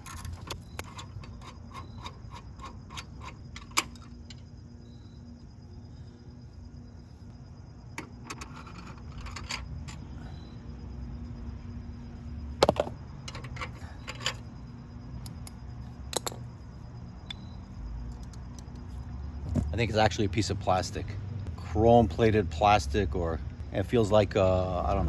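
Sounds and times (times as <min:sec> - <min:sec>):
metal tools clinking: 0:00.0 - 0:04.5, 0:08.0 - 0:10.1, 0:12.6 - 0:14.5.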